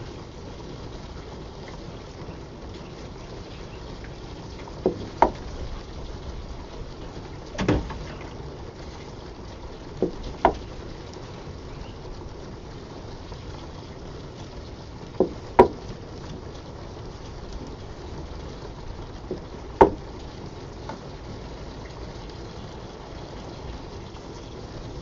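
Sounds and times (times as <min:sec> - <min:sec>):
dull thump: 0:04.8 - 0:05.4, 0:07.6 - 0:08.4, 0:15.2 - 0:15.8, 0:19.3 - 0:20.1.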